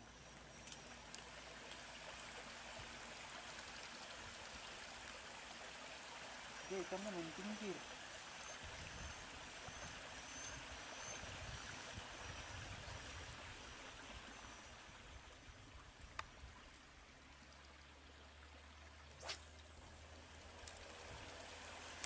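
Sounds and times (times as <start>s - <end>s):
light rain on water: 0.2s - 8.5s.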